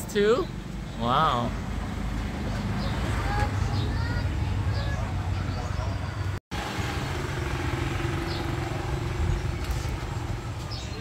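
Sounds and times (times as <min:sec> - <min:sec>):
engine running with low rumble: 0:01.8 - 0:11.0.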